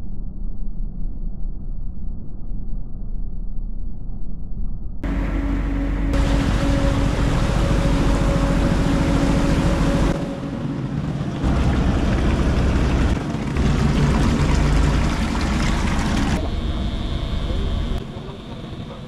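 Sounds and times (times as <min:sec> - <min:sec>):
boat engine running: 0:05.0 - 0:19.0
water rushing: 0:05.1 - 0:19.0.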